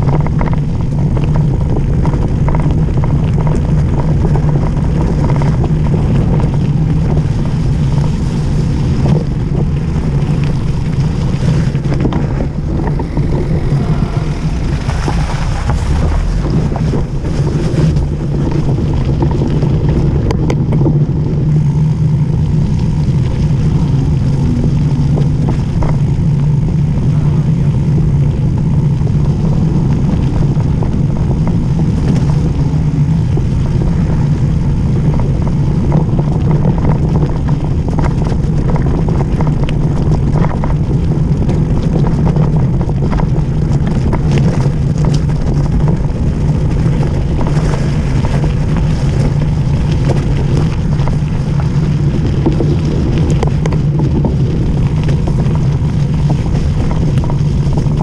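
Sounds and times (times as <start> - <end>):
bike tyres crunching over gravel: 0.0 - 58.0
wind on microphone: 0.0 - 58.0
car passing: 8.1 - 20.1.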